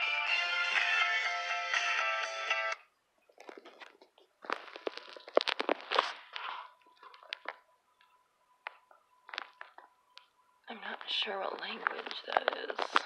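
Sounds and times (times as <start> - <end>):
crackling garbled radio fragments: 3.3 - 13.0.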